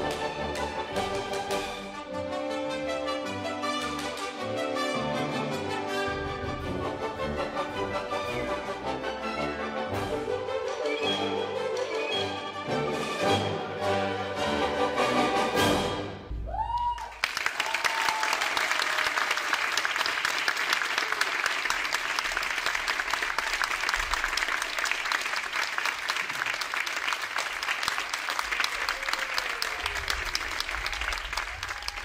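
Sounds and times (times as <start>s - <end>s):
orchestral music: 0.0s - 16.7s
audience applauding: 16.5s - 32.0s.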